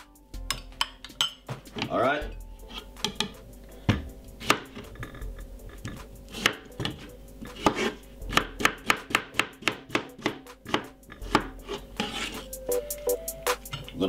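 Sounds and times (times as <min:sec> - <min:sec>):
knife slicing cucumber on board: 0:03.9 - 0:04.9, 0:05.9 - 0:12.4.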